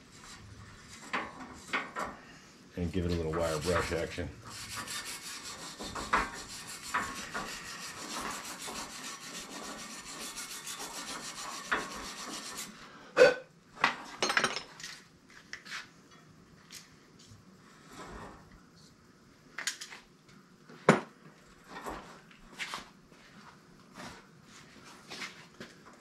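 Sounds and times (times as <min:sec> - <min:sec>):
wire brush scrubbing metal: 0:02.8 - 0:12.8.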